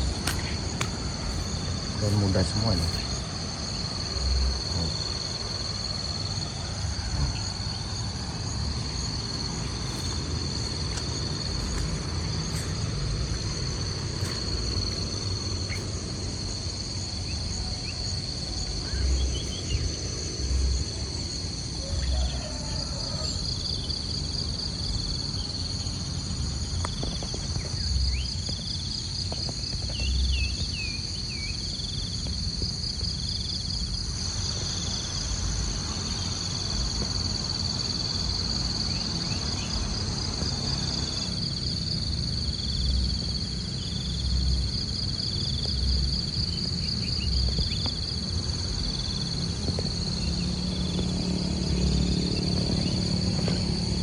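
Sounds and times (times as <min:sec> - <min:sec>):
low rumbles: 0:00.0 - 0:21.8, 0:41.6 - 0:54.0
high-pitched insect chorus: 0:00.0 - 0:54.0
pulsing insect call: 0:00.0 - 0:54.0.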